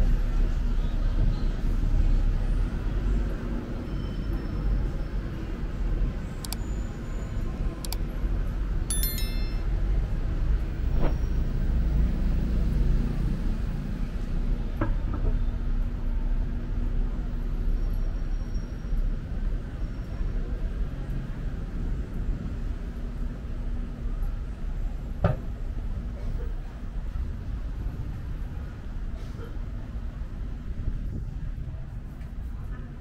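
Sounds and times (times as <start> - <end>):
high metallic clinks: 8.9 - 9.8
distant city traffic rumble: 9.8 - 33.0.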